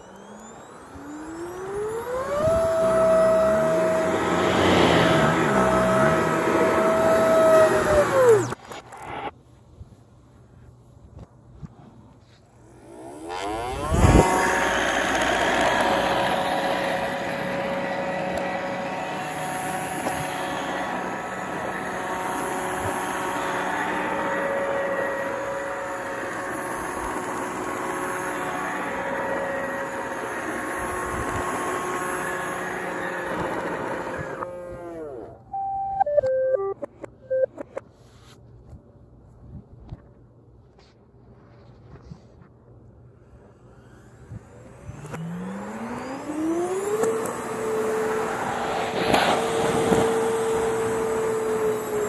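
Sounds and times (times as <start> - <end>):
robot vacuum motor whir reversed: 0.0 - 9.3, 12.5 - 35.4, 43.3 - 52.0.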